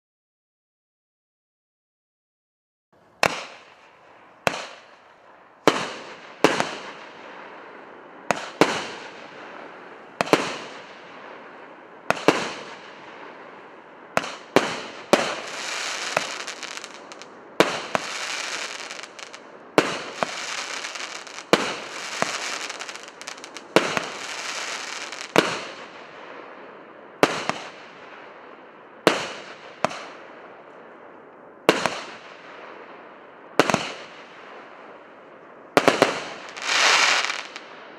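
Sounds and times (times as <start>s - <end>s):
firework shots exploding: 3.2s - 5.0s, 5.6s - 7.6s, 8.2s - 13.4s, 14.2s - 26.5s, 27.2s - 28.2s, 29.0s - 30.3s, 31.7s - 32.7s, 33.6s - 34.6s, 35.8s - 37.8s
firework hiss: 14.2s - 25.8s, 35.9s - 37.7s.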